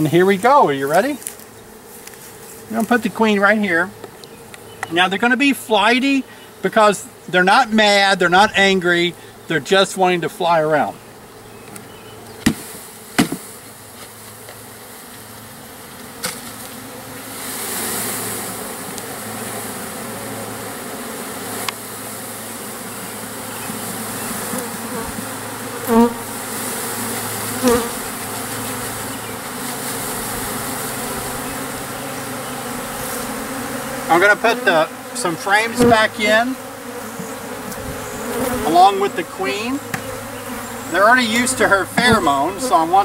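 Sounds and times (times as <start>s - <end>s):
honey bees buzzing: 0.0s - 43.0s
sharp knocks: 13.2s - 13.5s.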